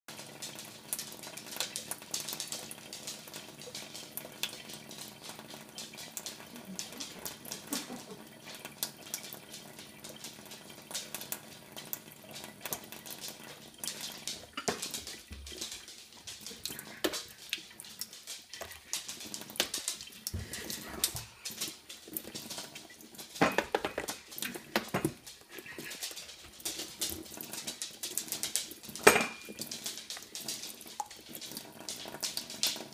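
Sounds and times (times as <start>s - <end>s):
cat splashing water: 0.1s - 32.9s
tap water trickling into sink: 0.2s - 25.2s
cat lapping: 0.4s - 23.3s.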